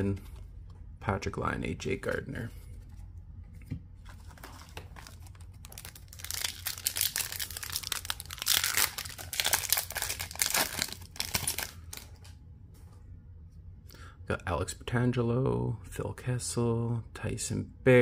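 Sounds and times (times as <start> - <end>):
foil wrapper crinkling and tearing: 4.2 - 12.2.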